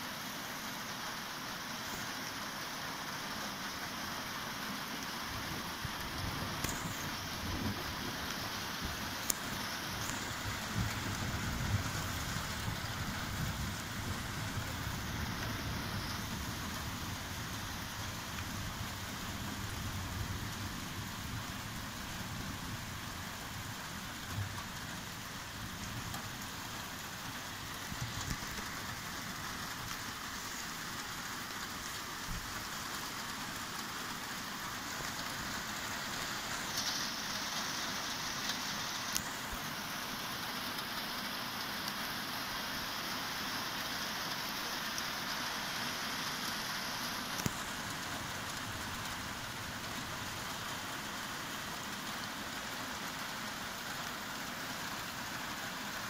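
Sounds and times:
steady rain: 0:00.0 - 0:56.0
low thunder rumble: 0:10.2 - 0:24.8.

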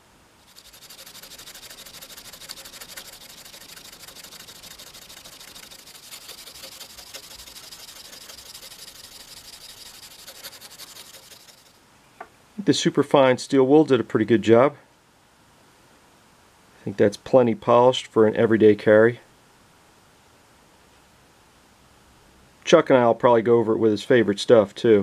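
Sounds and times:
steel wool rubbing metal blade: 0:00.5 - 0:11.8.

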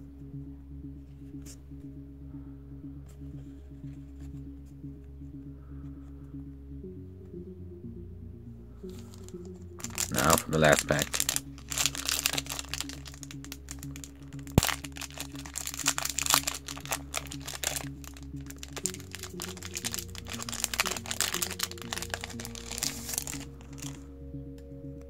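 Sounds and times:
soft background music: 0:00.0 - 0:25.0
foil wrapper crinkling and tearing: 0:09.2 - 0:24.0.

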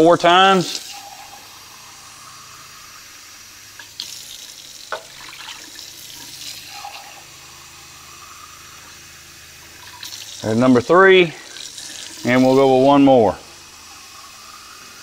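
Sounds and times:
tap running into sink: 0:04.9 - 0:06.6.

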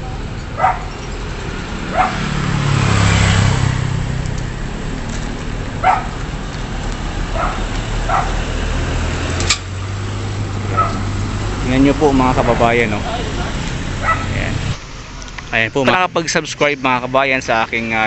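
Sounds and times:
motorcycle passing: 0:00.0 - 0:16.1
traffic hum: 0:00.0 - 0:18.0
dog barking: 0:00.6 - 0:01.0, 0:01.9 - 0:02.3, 0:05.8 - 0:06.2, 0:07.3 - 0:08.4, 0:10.7 - 0:11.1, 0:14.0 - 0:14.4.

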